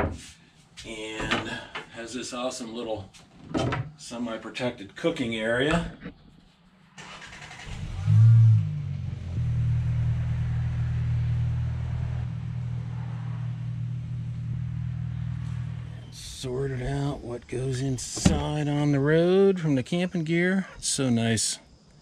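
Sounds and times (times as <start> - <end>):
car engine starting and running: 6.9 - 19.1.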